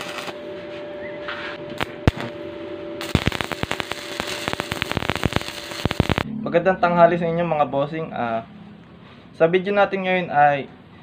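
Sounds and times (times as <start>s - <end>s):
welding arc crackling and popping: 0.0s - 0.4s, 1.7s - 2.4s, 3.0s - 6.3s.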